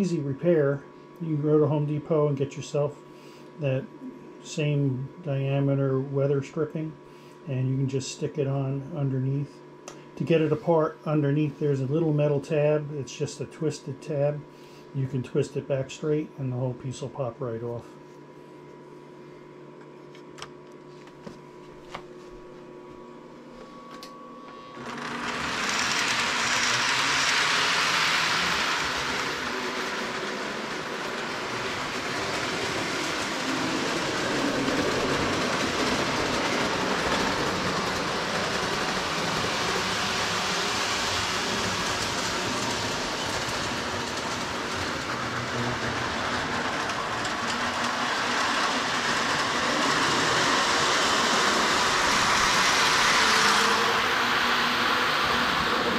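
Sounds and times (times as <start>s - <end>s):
model train running: 24.8s - 55.9s.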